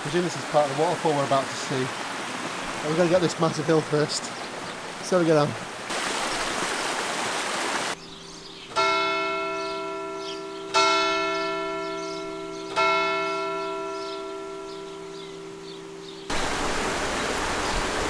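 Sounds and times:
rushing mountain stream: 0.0 - 8.0, 15.2 - 18.0
church bell tolling: 8.7 - 16.3.

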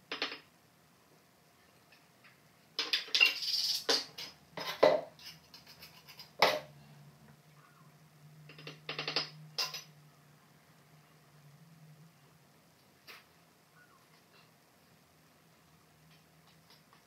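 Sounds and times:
hard objects clinking on tile: 2.8 - 6.7, 8.5 - 9.9.

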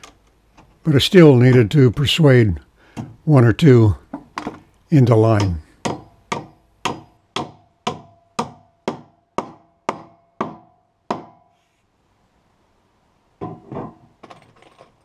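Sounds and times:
clatter of knocks: 13.4 - 15.0.

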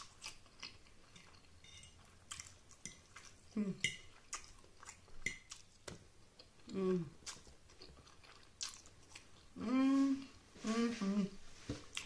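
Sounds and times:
low voice hum: 6.7 - 7.2, 9.6 - 11.4
wet chewing and slurping: 7.2 - 9.5.

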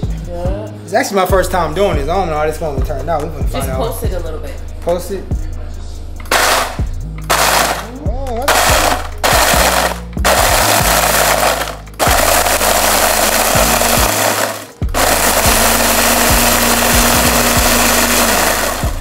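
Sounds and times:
blender grinding chips: 6.3 - 19.0.

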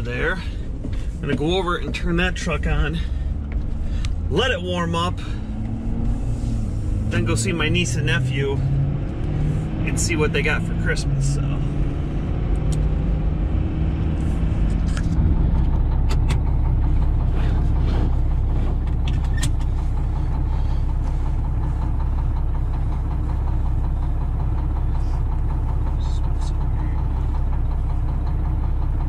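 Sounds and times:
truck cab noise on the move: 0.0 - 29.0
truck engine idling: 0.0 - 29.0
seatbelt buckling clicks: 12.6 - 12.9, 19.0 - 19.7.

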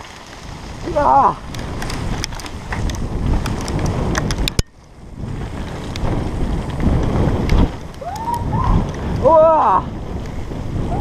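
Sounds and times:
bike rattling clicks: 0.0 - 9.4, 10.0 - 10.8
tyres on dirt trail: 0.0 - 11.0
wind buffeting camera: 0.0 - 11.0.

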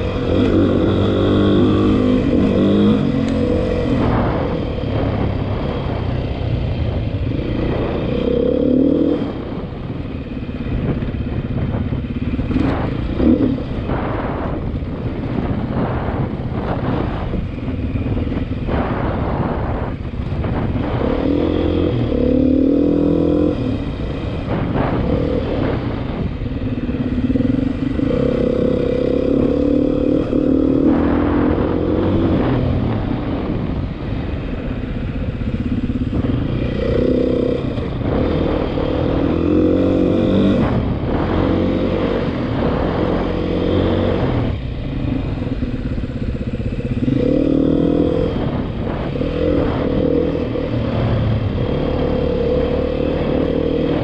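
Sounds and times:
dirt bike engine revving: 0.0 - 5.8, 35.4 - 54.0.

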